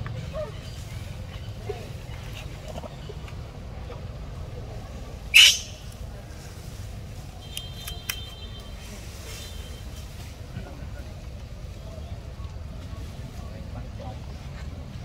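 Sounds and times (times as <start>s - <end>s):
monkey screeching: 5.4s - 5.8s.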